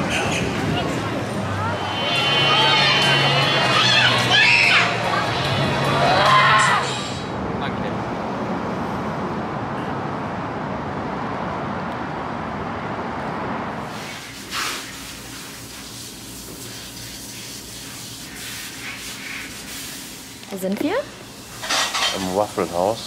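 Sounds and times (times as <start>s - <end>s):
outdoor noise rush: 0.0s - 23.0s
dishes clinking: 21.6s - 22.4s.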